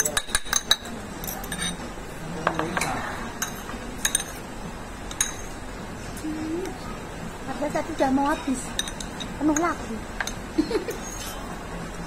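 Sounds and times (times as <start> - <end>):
utensils clinking on ceramic bowls: 0.0 - 4.5, 5.1 - 5.6, 8.2 - 11.6.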